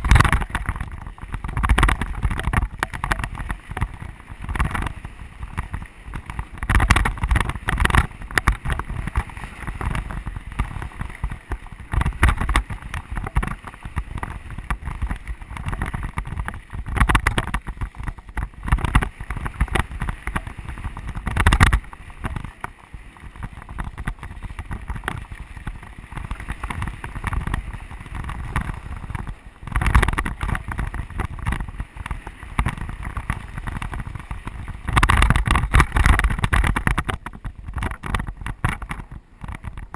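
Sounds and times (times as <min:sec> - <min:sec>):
bike knocking and rattling: 0:00.0 - 0:39.9
wind buffeting microphone: 0:00.0 - 0:39.9.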